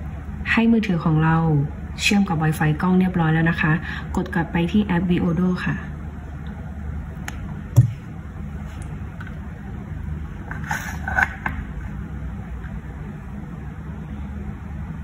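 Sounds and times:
steady low hum: 0:00.0 - 0:15.0
rustling scrape: 0:10.5 - 0:11.3.

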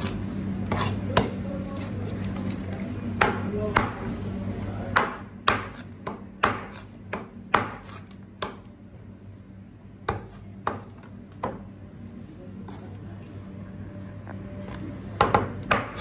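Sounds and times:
knife chopping on cutting board: 0:00.0 - 0:01.9, 0:04.9 - 0:08.6, 0:10.1 - 0:11.6, 0:15.2 - 0:16.0.

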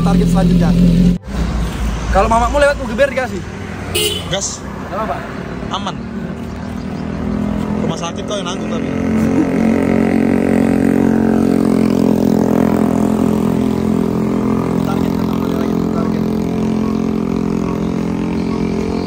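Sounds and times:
motorcycle engine revving high: 0:00.0 - 0:01.4, 0:05.8 - 0:19.0.

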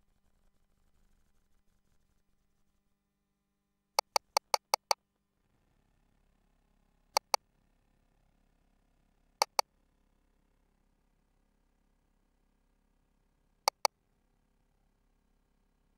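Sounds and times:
sharp electronic clicks: 0:04.0 - 0:05.0, 0:07.2 - 0:07.4, 0:09.4 - 0:09.6, 0:13.7 - 0:13.9.

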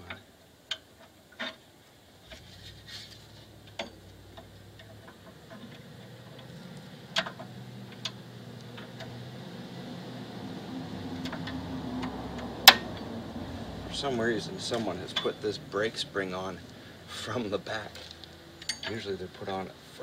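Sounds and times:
low hum: 0:02.2 - 0:18.9
metal tool clicking on spring: 0:18.6 - 0:19.0.

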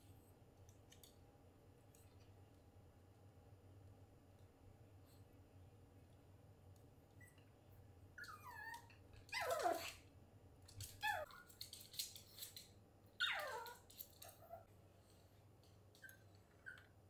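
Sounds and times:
small dog whining: 0:08.2 - 0:10.0, 0:10.9 - 0:11.6, 0:13.2 - 0:14.7, 0:16.0 - 0:17.0.

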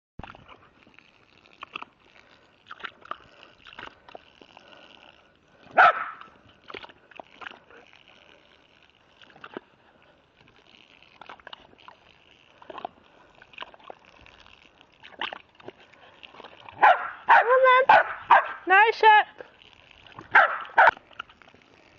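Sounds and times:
dog barking: 0:05.8 - 0:06.3, 0:16.8 - 0:18.6, 0:20.3 - 0:21.0.

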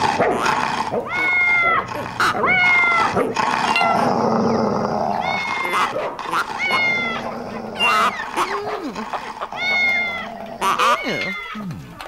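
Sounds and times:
cartoon dog howling barks: 0:00.0 - 0:04.1, 0:05.2 - 0:09.0.

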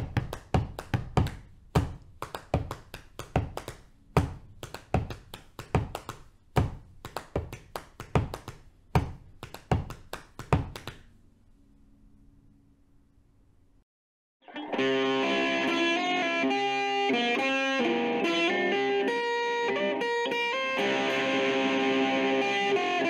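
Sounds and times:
hands tapping on thighs: 0:00.0 - 0:11.1.

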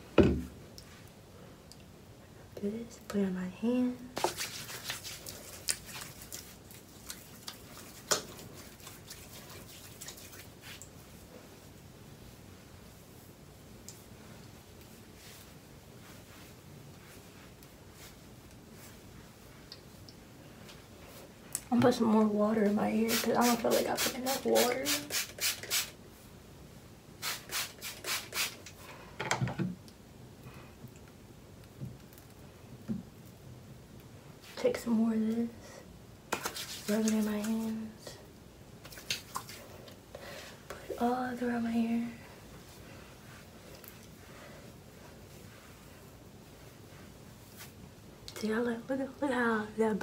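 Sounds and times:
hairbrush brushing through hair: 0:04.2 - 0:10.9, 0:22.6 - 0:26.0, 0:27.2 - 0:28.6, 0:36.3 - 0:37.8, 0:44.9 - 0:47.8.

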